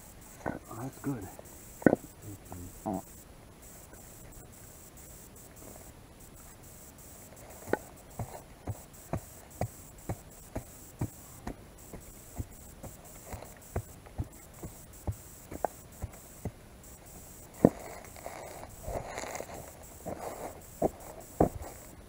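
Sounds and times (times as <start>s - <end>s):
hammer knocking on soil: 7.7s - 16.6s.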